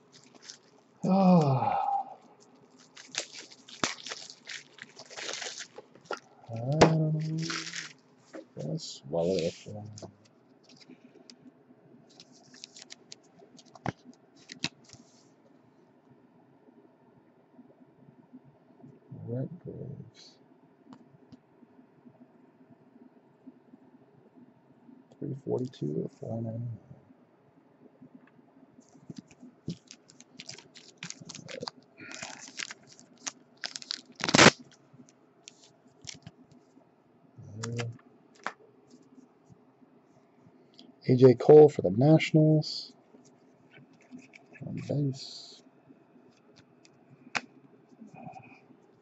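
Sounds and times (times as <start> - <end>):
card scraping in plastic sleeve: 0.0 - 0.7, 2.7 - 8.0, 9.2 - 10.1, 12.1 - 15.2, 29.1 - 34.8
loud plastic crack: 2.8 - 8.0, 29.1 - 34.8, 38.4 - 38.6.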